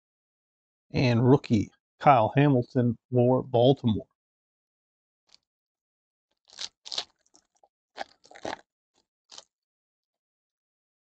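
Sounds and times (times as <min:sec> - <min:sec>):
foil wrapper tearing and crinkling: 0:06.4 - 0:08.6.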